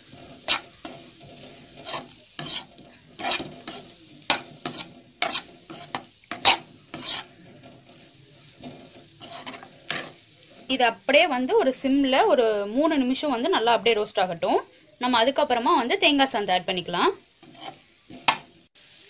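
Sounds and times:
spatula scraping a pan: 0.0s - 12.3s, 16.7s - 19.0s
oil sizzling: 0.0s - 19.0s.

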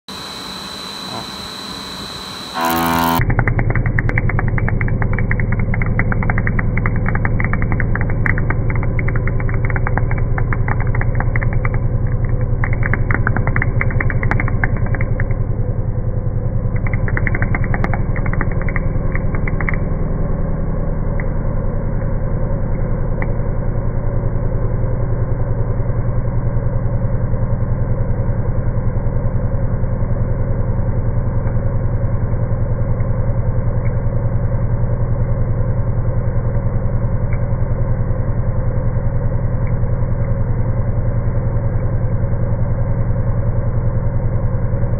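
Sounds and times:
milling machine humming: 0.1s - 15.7s
metal cutting crackling: 2.6s - 15.3s.

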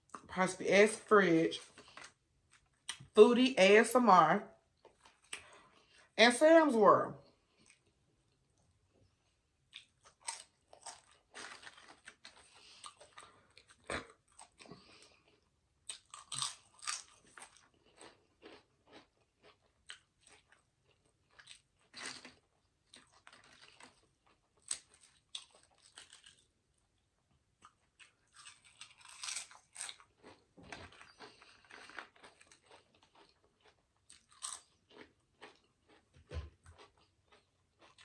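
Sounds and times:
crunchy snack being chewed: 9.7s - 26.6s, 27.6s - 38.0s.

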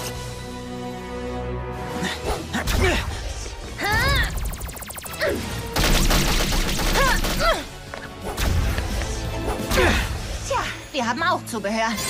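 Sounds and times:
cartoon action music: 2.6s - 10.2s.

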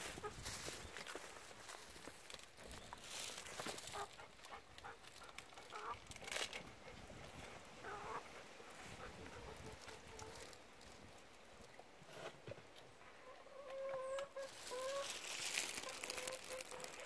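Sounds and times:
hen clucking: 0.0s - 0.7s, 3.8s - 6.0s, 7.8s - 10.6s, 13.2s - 17.0s.

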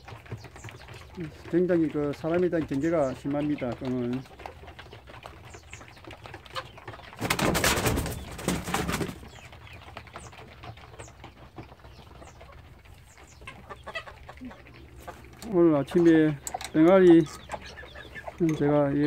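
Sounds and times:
chickens clucking softly: 0.0s - 19.0s.

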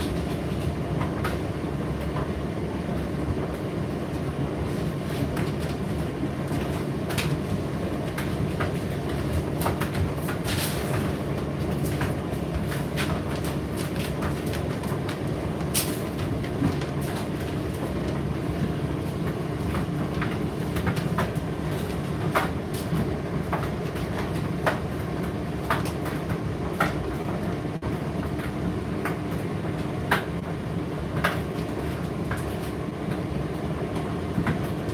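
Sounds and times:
tumble dryer humming: 0.0s - 34.9s.

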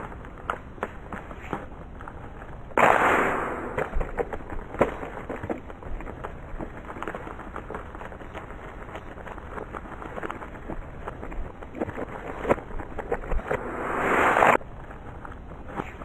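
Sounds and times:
small clicks and ticks: 3.8s - 13.6s.

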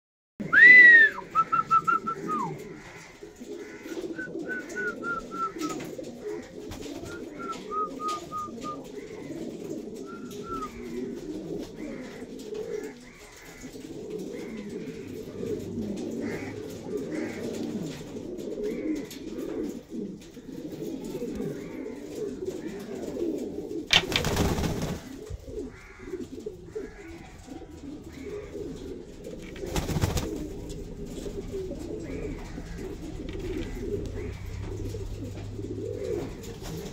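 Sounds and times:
pigeons cooing: 0.4s - 36.9s
high whistled notes: 0.5s - 2.4s.

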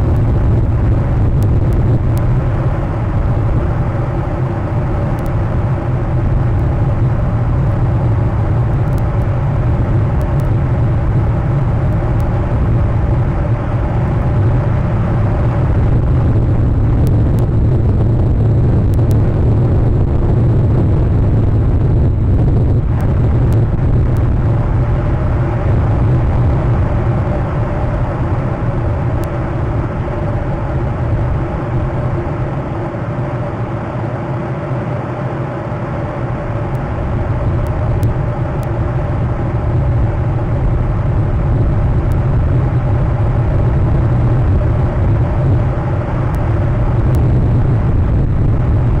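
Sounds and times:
low rumble: 0.0s - 49.0s.

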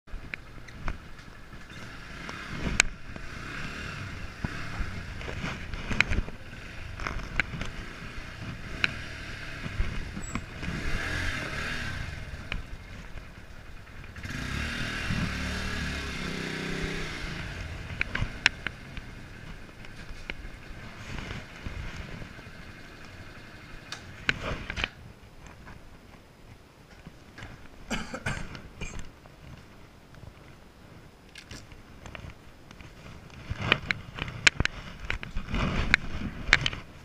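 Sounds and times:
small motorcycle engine running: 1.4s - 24.8s.

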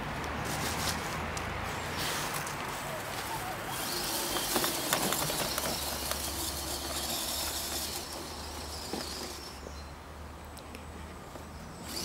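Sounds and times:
dry leaves crackling: 0.4s - 9.5s
toy truck motor whine: 3.7s - 9.7s.

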